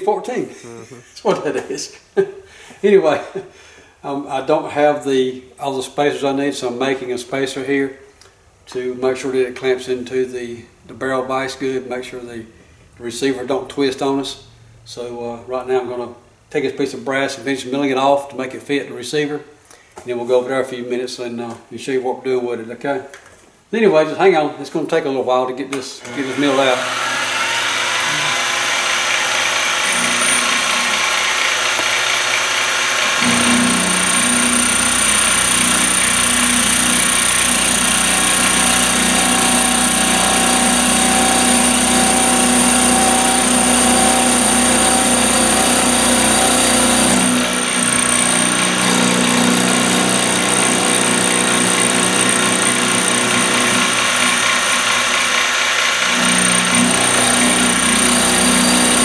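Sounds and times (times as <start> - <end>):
milling machine motor hum and whine: 26.0 - 49.3
end mill cutting metal: 26.0 - 59.0.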